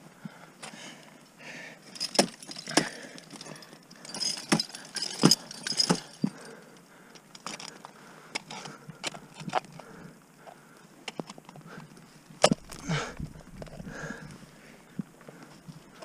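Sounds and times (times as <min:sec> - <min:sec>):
climbing hardware jangling: 0:01.8 - 0:06.6.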